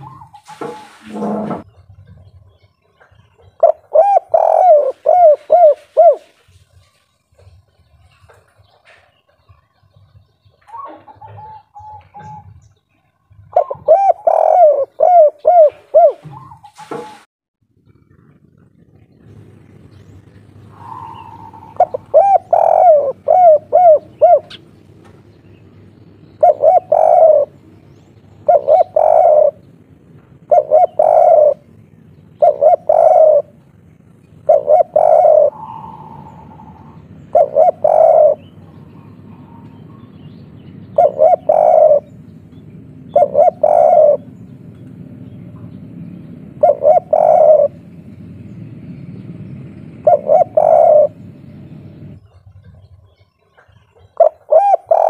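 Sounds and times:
dove cooing: 0:00.0 - 0:01.7, 0:03.1 - 0:06.8, 0:08.5 - 0:17.2, 0:17.9 - 0:25.0, 0:26.2 - 0:55.0.

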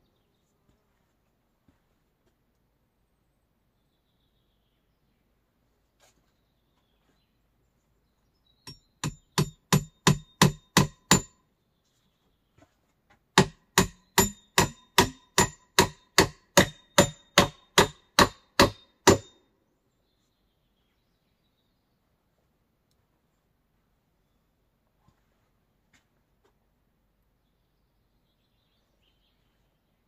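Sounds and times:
hammer blows on metal: 0:08.7 - 0:11.4, 0:13.4 - 0:19.4.

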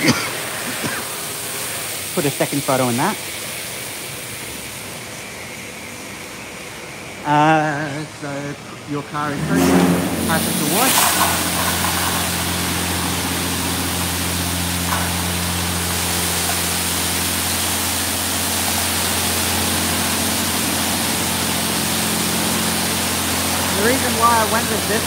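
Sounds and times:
high-pressure water spray hissing: 0:00.0 - 0:08.4, 0:09.0 - 0:25.0
low machine hum: 0:00.0 - 0:25.0.

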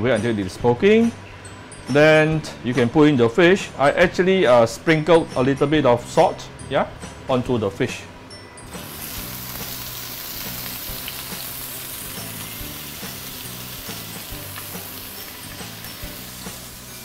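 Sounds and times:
soft background music: 0:00.0 - 0:17.0
fish sizzling in hot oil: 0:08.7 - 0:17.0.

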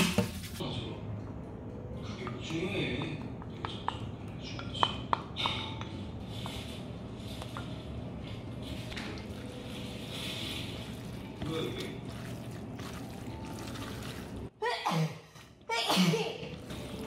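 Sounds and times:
hands squishing noodles: 0:10.0 - 0:14.4.

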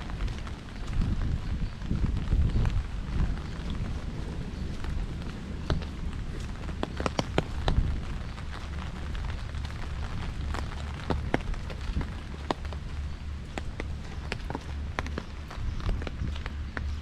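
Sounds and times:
low rumble: 0:00.0 - 0:17.0
rain falling: 0:00.0 - 0:17.0.

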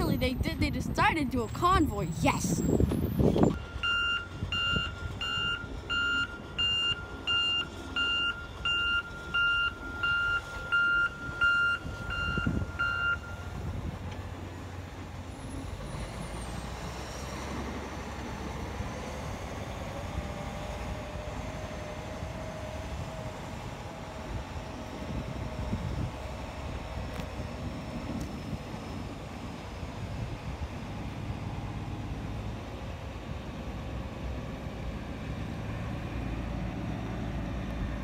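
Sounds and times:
diesel engine running: 0:00.0 - 0:38.0
backup alarm beeping: 0:03.4 - 0:13.5.

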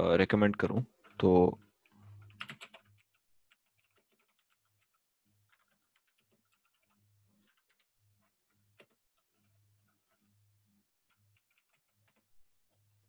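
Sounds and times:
faint keyboard typing: 0:01.0 - 0:10.4, 0:11.0 - 0:13.0.

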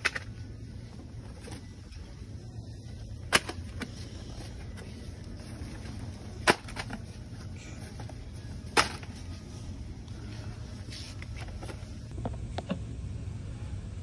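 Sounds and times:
low hum of shop ambience: 0:00.0 - 0:14.0
boxes dropping into plastic basket: 0:03.2 - 0:03.9, 0:04.8 - 0:07.2, 0:07.8 - 0:09.2.

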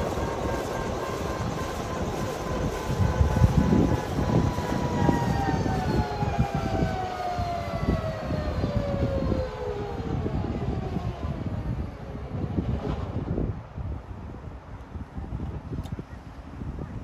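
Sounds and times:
helicopter engine whine falling: 0:00.0 - 0:12.2.

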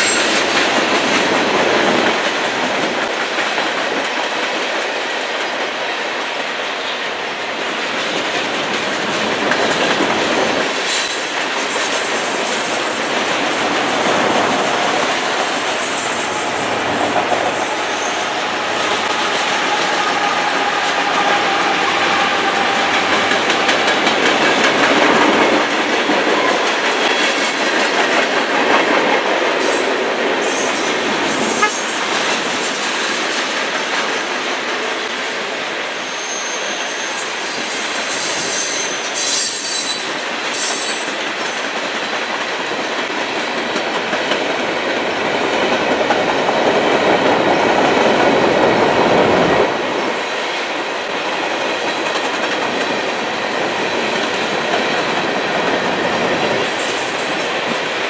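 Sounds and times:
train wheels on rails: 0:00.0 - 0:58.0
faint wheel squeal: 0:36.1 - 0:41.0.

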